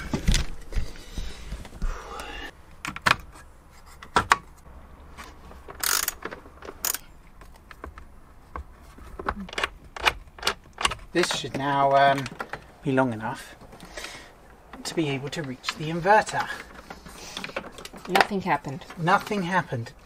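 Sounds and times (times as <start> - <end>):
metal parts clicking and knocking: 5.6 - 8.1, 9.2 - 12.8, 13.6 - 19.4.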